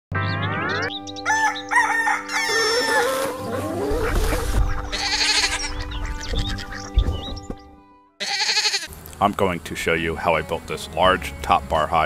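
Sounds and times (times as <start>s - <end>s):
background music with held notes: 0.1s - 8.2s, 9.0s - 12.0s
rooster crowing: 1.2s - 3.5s.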